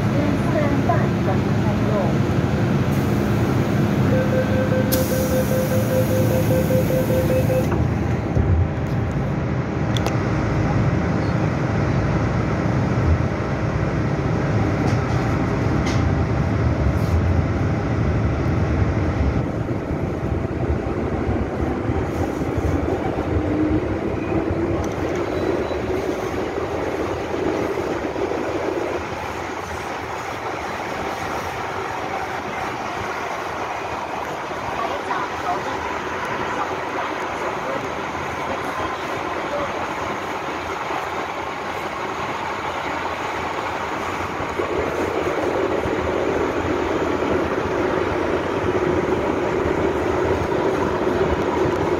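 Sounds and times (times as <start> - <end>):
train running rumble: 0.0 - 51.9
repeated beeping tone: 4.1 - 7.8.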